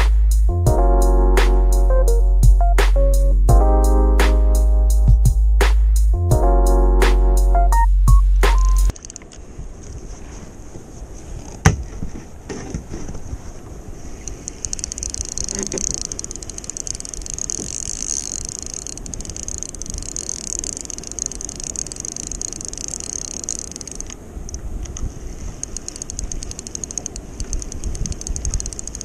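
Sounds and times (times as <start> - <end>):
wind and water rushing: 8.0 - 29.0
fishing reel ticking rapidly: 14.4 - 24.2, 25.6 - 29.0.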